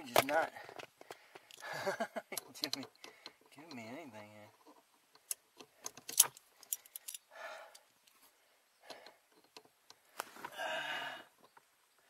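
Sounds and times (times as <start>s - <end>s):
sharp clicks: 2.3s - 3.9s
metallic clinks and rattles: 2.3s - 8.2s
soft rustling: 9.3s - 10.6s.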